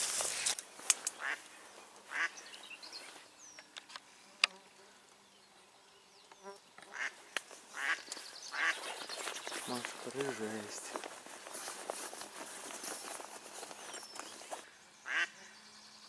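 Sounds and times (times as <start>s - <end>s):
duck quacking: 1.2s - 1.4s, 2.1s - 2.4s, 6.9s - 8.8s, 15.1s - 15.5s.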